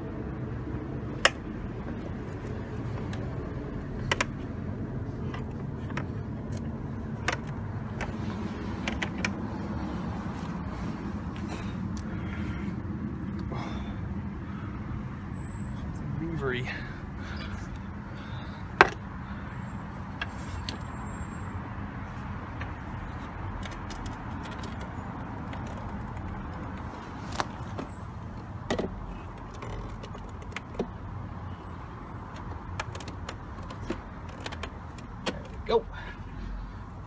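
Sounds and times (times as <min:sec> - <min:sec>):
steady low rumble: 0:00.0 - 0:37.0.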